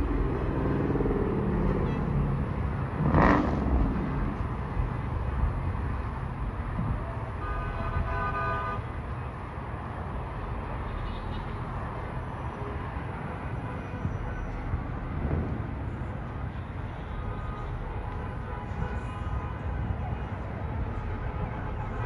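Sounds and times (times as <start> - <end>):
highway traffic rumble: 0.0 - 22.0
vehicle horn honking: 7.4 - 8.8.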